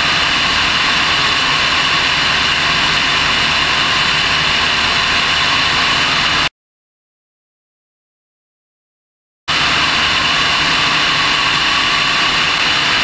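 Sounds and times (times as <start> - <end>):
airplane engine drone: 0.0 - 6.5, 9.5 - 13.0
rushing air: 9.5 - 13.0.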